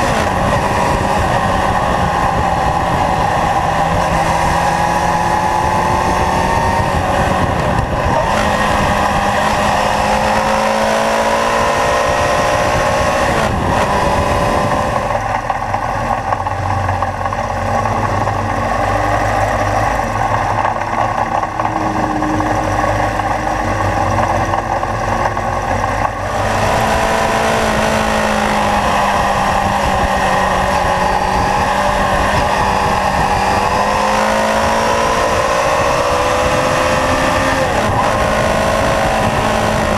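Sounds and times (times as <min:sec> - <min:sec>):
motorcycle engine revving: 0:00.0 - 0:39.9
wind rushing over microphone: 0:00.0 - 0:39.9.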